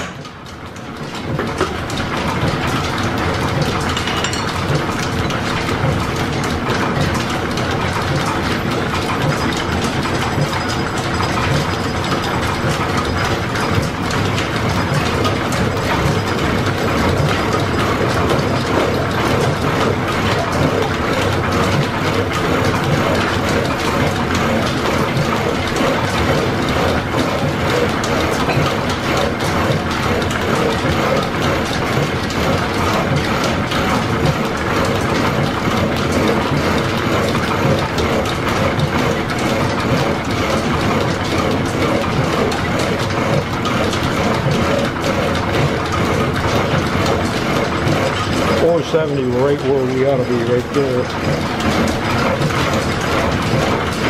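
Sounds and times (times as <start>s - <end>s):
milling machine running: 0.0s - 54.0s.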